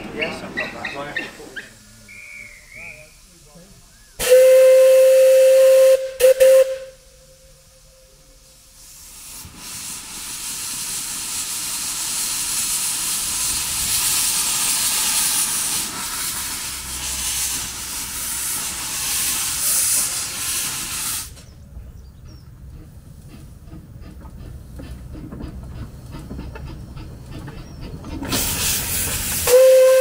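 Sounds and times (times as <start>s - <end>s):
hiss of steam: 0.5s - 21.6s, 28.2s - 30.0s
steam locomotive whistle: 2.1s - 3.2s, 4.2s - 8.2s, 28.6s - 30.0s.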